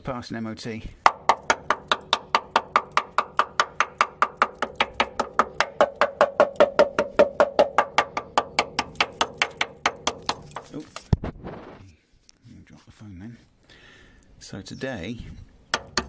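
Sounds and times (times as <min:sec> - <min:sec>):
hammer striking metal rail: 0:01.1 - 0:10.8, 0:15.8 - 0:16.0.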